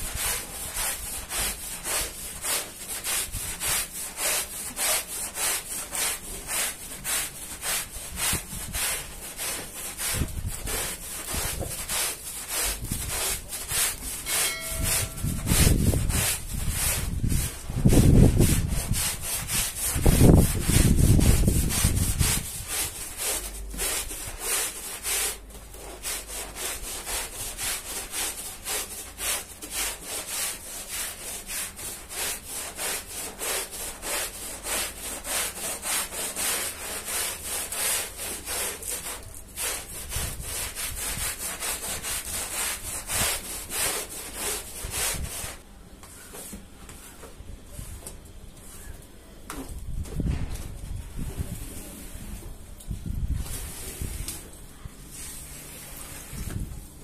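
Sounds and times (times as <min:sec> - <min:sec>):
brush scrubbing wet rug: 0:00.0 - 0:45.6, 0:53.3 - 0:56.7.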